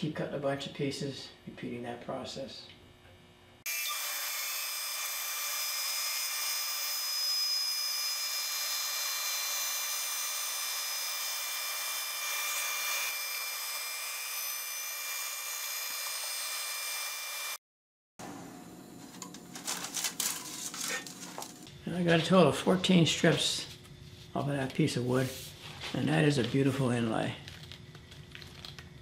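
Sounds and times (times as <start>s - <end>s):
sped-up bandsaw cutting wood: 3.7s - 17.6s.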